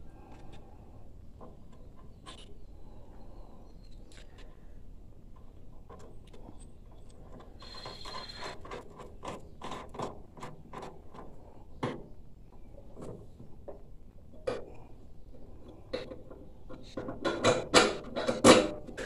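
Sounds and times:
brief squeak: 0:07.6 - 0:08.6.

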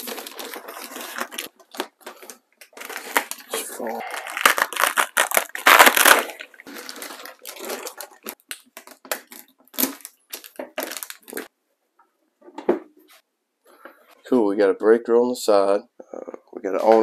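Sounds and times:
plastic wrapping crinkling: 0:00.0 - 0:11.5.

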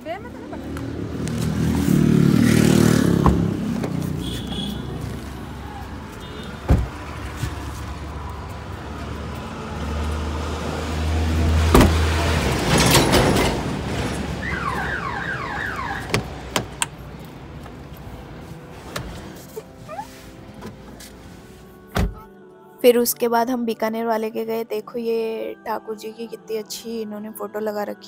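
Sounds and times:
car tailgate slamming shut: 0:06.6 - 0:07.0, 0:11.7 - 0:12.0, 0:22.0 - 0:22.3
car door handle clicks: 0:16.0 - 0:17.0.

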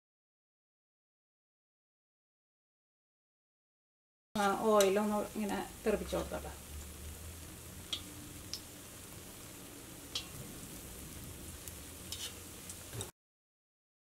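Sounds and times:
fritters deep-frying in oil: 0:04.4 - 0:13.1.

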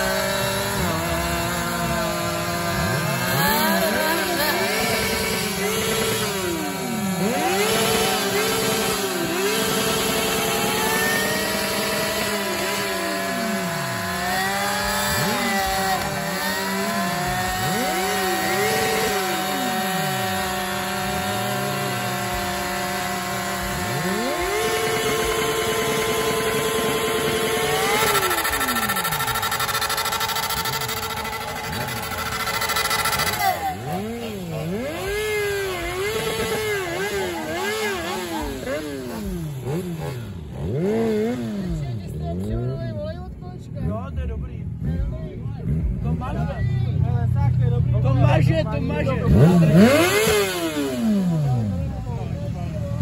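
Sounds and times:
motorcycle engine revving: 0:00.0 - 0:53.0.

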